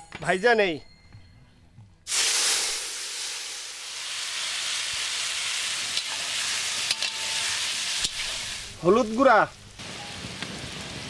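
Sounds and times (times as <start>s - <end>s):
gourd sizzling in hot oil: 2.1s - 11.0s.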